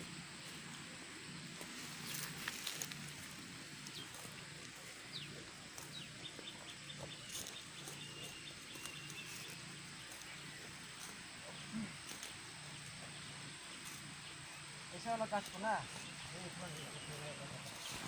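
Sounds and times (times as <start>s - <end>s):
goat tearing grass: 1.5s - 14.2s, 15.3s - 18.0s
bird chirping: 3.8s - 18.0s.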